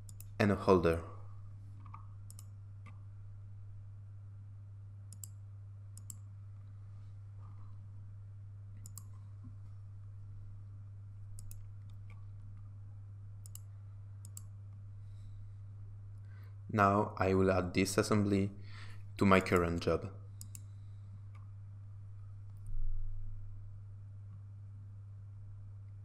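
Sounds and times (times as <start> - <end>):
computer mouse clicking: 0.0 - 0.4, 1.8 - 3.0, 5.1 - 5.4, 6.0 - 6.3, 8.8 - 9.2, 11.4 - 12.3, 13.4 - 14.5, 20.4 - 20.7
steady low hum: 0.0 - 26.0.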